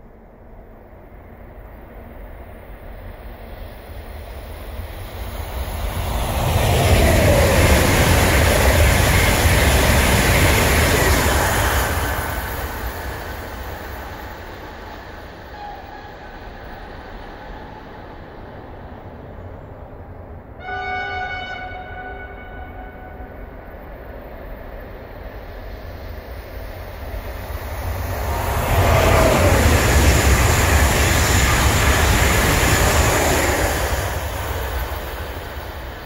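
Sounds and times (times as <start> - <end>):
high-speed train passing: 0.0 - 36.0
train horn: 15.5 - 16.2, 20.6 - 23.6.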